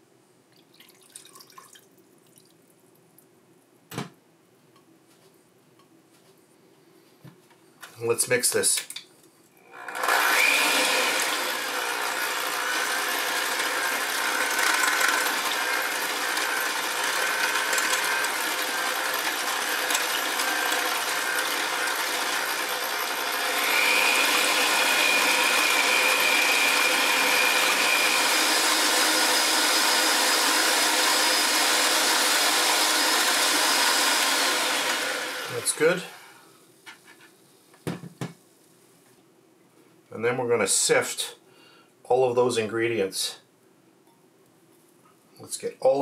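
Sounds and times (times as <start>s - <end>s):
electric hand mixer whisking batter: 9.8s - 36.3s.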